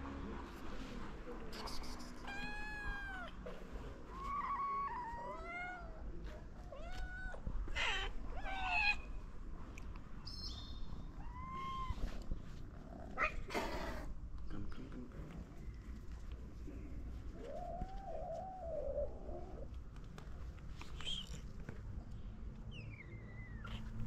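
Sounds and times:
cats meowing: 0:02.2 - 0:09.2, 0:11.0 - 0:12.4, 0:17.3 - 0:19.7.

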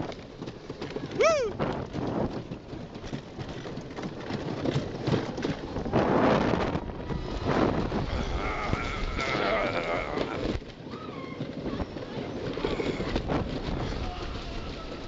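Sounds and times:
roller coaster clattering on wooden track: 0:00.0 - 0:15.0
rider whooping: 0:01.0 - 0:01.8, 0:07.4 - 0:13.2.

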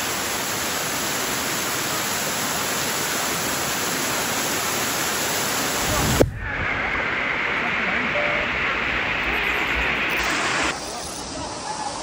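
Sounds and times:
waterfall pouring onto rocks: 0:00.0 - 0:08.1.

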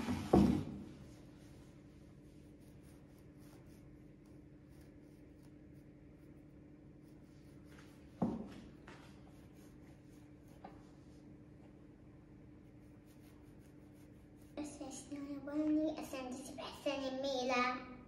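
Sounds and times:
steady low hum: 0:00.0 - 0:18.0
toothbrush scratching plush toy: 0:01.1 - 0:08.2, 0:09.2 - 0:10.7, 0:12.6 - 0:15.4.

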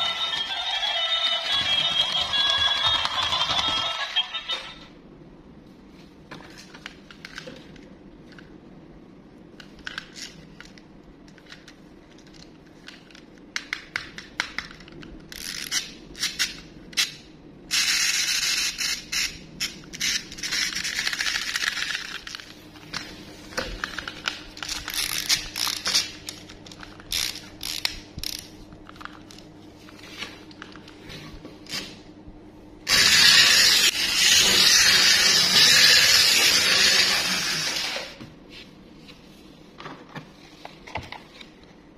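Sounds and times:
toy motor whirring: 0:00.0 - 0:04.8, 0:15.3 - 0:16.6, 0:17.7 - 0:22.2, 0:24.6 - 0:26.2, 0:27.1 - 0:28.5, 0:32.9 - 0:38.2
plastic toys clicking and scraping: 0:09.6 - 0:22.5, 0:23.8 - 0:29.2.

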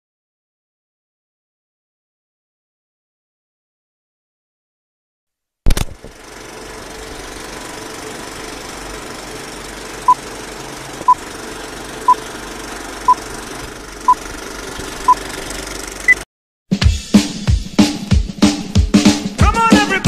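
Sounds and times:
film projector whirring: 0:05.7 - 0:16.2.

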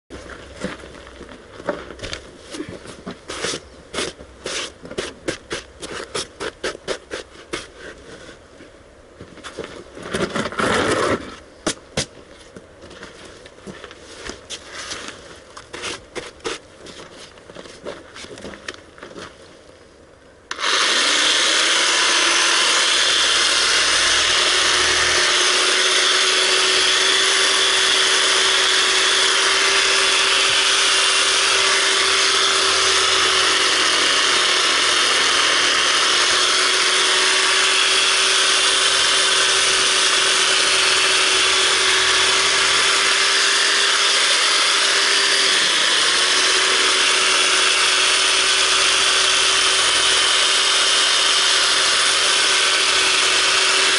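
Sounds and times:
reciprocating saw cutting: 0:20.5 - 0:53.9.

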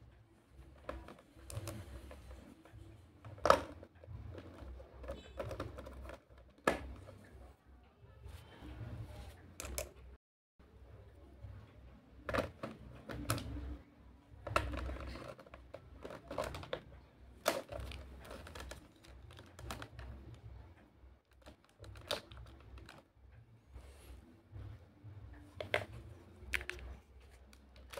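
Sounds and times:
plastic pieces clicking and tapping: 0:00.6 - 0:07.2, 0:14.4 - 0:20.4, 0:21.3 - 0:23.1.

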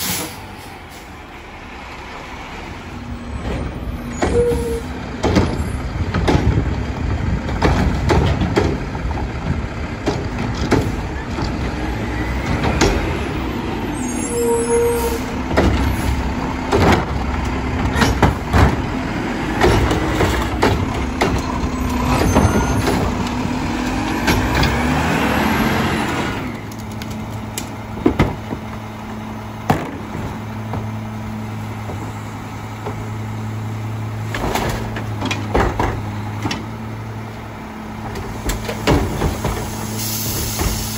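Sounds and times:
diesel engine revving: 0:00.0 - 0:40.9
garbage truck humming: 0:00.0 - 0:40.9
arm and cart clanking: 0:19.6 - 0:23.4.

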